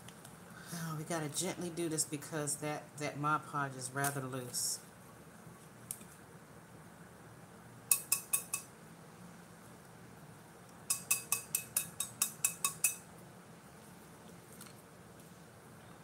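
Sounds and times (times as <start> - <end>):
metal tumbler tapped clinking: 7.9 - 8.7, 10.9 - 13.0.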